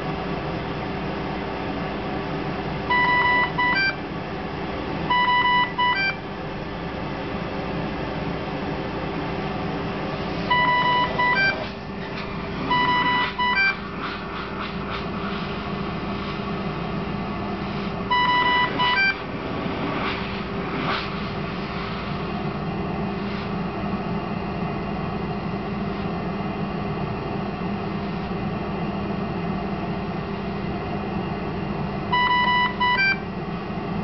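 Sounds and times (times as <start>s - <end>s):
turbine blower hum: 0.0s - 34.0s
ventilator alarm beeps: 2.8s - 4.1s, 5.1s - 6.3s, 10.5s - 11.7s, 12.7s - 13.8s, 18.1s - 19.2s, 32.1s - 33.3s.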